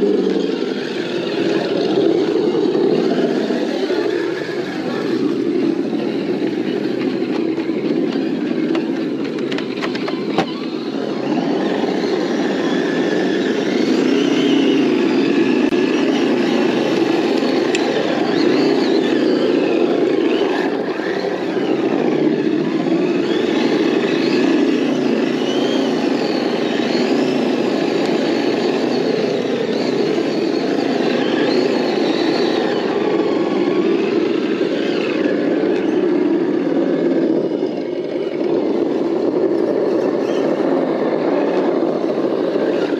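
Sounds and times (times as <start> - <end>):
electric motors whining: 0.0 - 42.9
low steady drone: 0.0 - 42.9.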